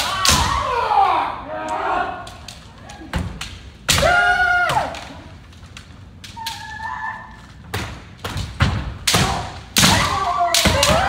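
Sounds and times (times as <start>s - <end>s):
bamboo sword strikes: 7.7s - 11.0s.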